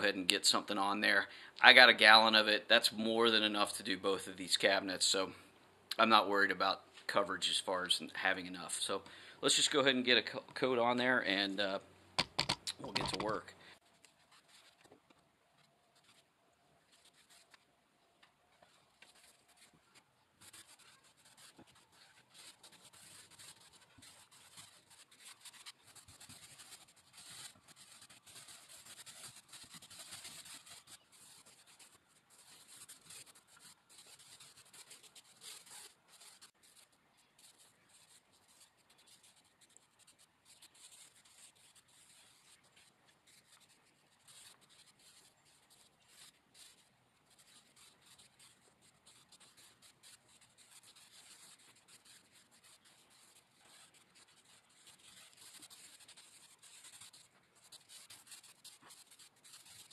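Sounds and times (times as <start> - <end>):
paint roller rubbing on wood: 20.4 - 36.8.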